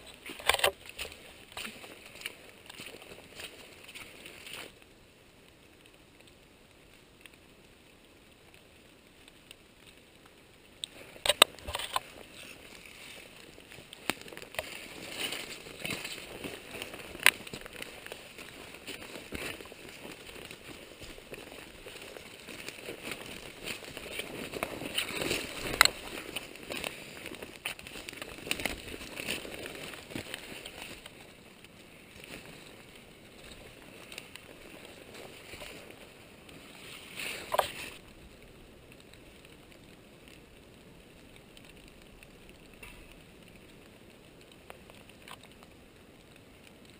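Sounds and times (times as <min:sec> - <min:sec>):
footsteps through undergrowth: 0:00.0 - 0:04.8, 0:10.8 - 0:38.1
twigs snapping: 0:00.0 - 0:04.8, 0:09.5 - 0:46.9
ferns and brush rustling: 0:00.0 - 0:46.9.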